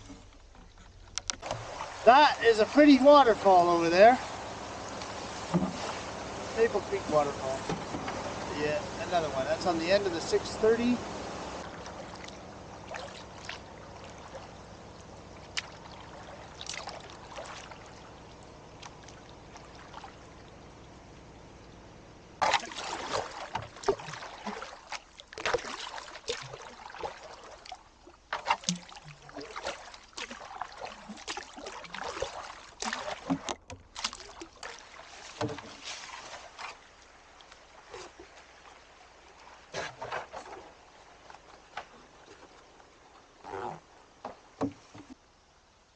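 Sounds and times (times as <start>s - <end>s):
paddle knocking against canoe: 0.0s - 20.3s, 22.4s - 25.7s, 31.2s - 36.0s, 39.7s - 45.2s
paddle splashing in water: 0.0s - 45.4s
rush of water or wind: 1.3s - 45.4s.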